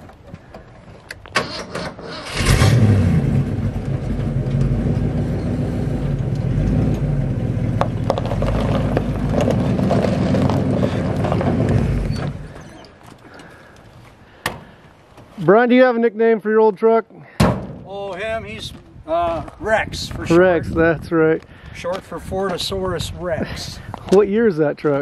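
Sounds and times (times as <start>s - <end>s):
truck engine starting and running: 1.0s - 13.5s.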